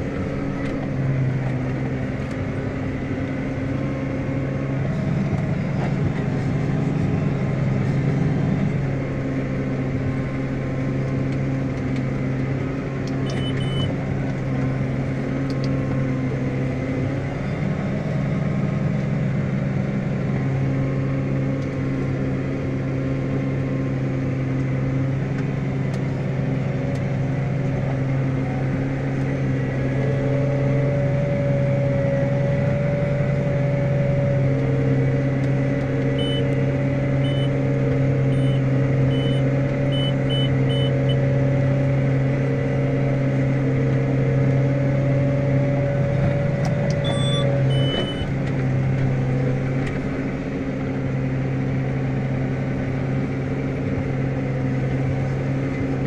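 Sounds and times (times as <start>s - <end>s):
tractor diesel engine running: 0.0s - 56.0s
short high electronic beeps: 13.3s - 13.9s, 36.2s - 36.5s, 37.2s - 37.5s, 38.3s - 39.4s, 47.0s - 48.3s.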